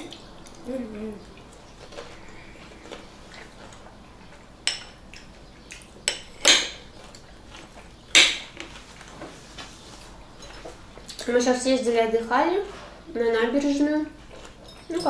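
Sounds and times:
cutlery clattering: 14.4 - 15.0.

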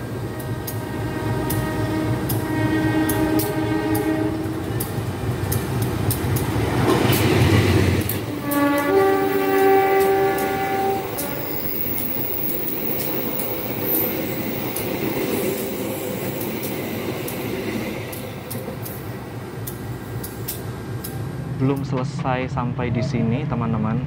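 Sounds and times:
train coaches rolling by: 0.0 - 24.0
train horn blast: 0.1 - 4.9, 8.2 - 11.8
locomotive engine rushing past: 3.2 - 21.8.

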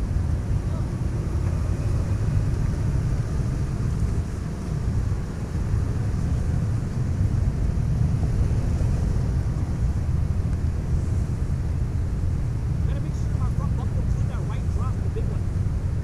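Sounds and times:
suv engine running at low revs: 0.0 - 16.0
wind buffeting microphone: 0.0 - 16.0.

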